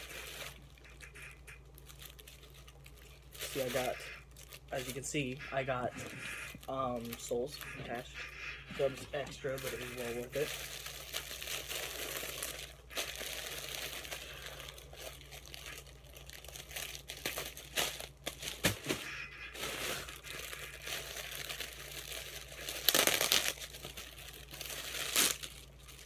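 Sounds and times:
plastic bag crinkling: 0.0s - 8.0s, 8.8s - 26.0s.

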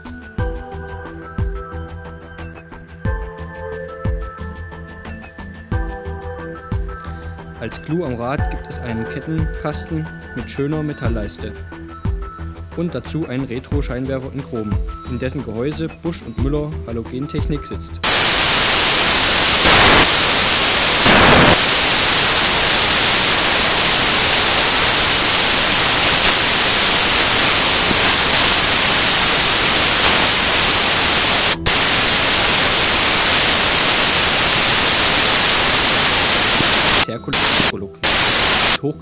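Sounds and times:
static hiss: 18.0s - 38.8s.

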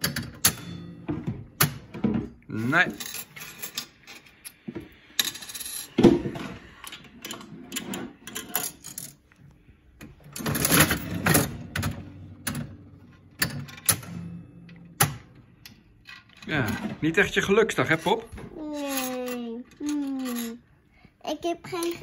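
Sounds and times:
coins clinking: 2.9s - 4.3s, 5.2s - 6.0s, 8.3s - 9.3s, 18.8s - 20.6s
slot machine mechanism clicking: 13.4s - 15.2s.

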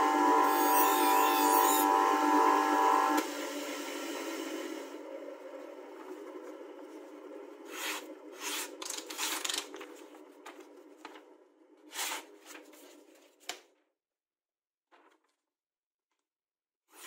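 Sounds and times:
knife slicing through paper: 7.7s - 9.8s.

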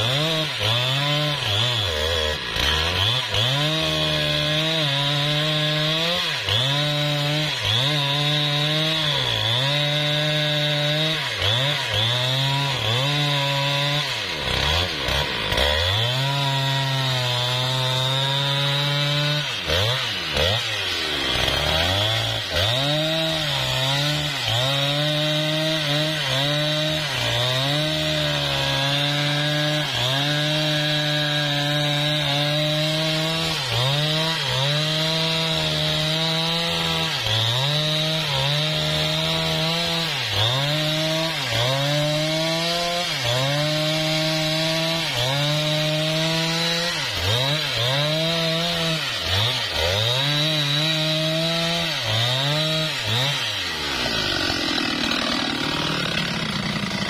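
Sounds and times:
chainsaw cutting wood: 0.0s - 57.0s.

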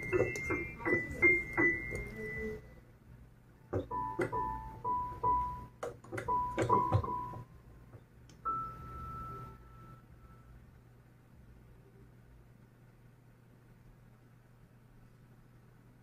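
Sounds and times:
digital piano notes: 0.0s - 2.8s, 3.7s - 7.6s, 8.4s - 10.0s.

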